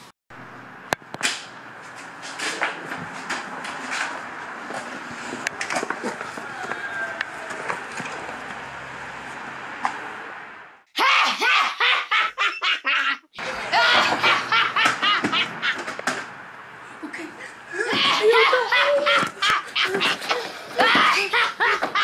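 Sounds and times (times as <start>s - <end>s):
steady rustling noise: 1.2s - 6.8s
person laughing loudly: 11.0s - 15.8s, 17.0s - 22.0s.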